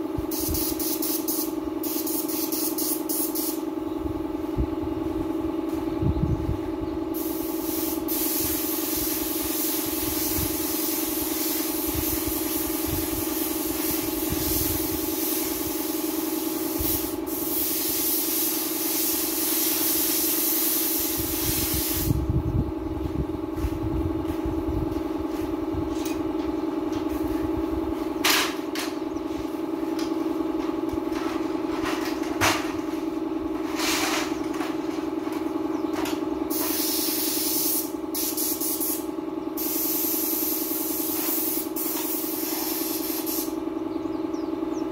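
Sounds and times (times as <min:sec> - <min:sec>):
steady hum: 0:00.0 - 0:44.9
paint spray gun hissing: 0:00.3 - 0:03.7, 0:07.2 - 0:22.2, 0:36.5 - 0:43.6.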